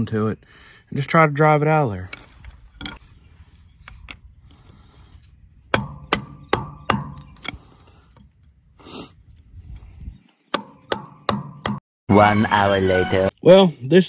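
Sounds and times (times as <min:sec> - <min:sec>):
hammer striking metal punch: 0:05.7 - 0:07.4, 0:10.6 - 0:11.8.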